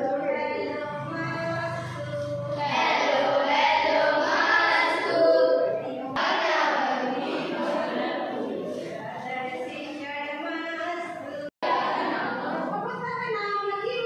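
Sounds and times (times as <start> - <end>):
children singing: 0.0 - 8.9, 11.6 - 12.8.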